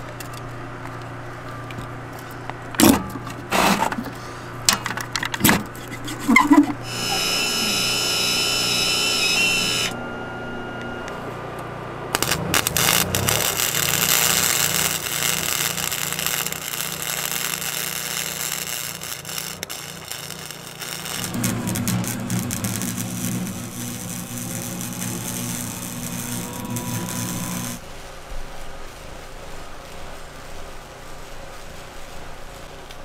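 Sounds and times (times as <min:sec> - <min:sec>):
welding arc crackling: 0:06.1 - 0:10.0, 0:12.1 - 0:33.0
welder gas hiss: 0:12.2 - 0:27.8.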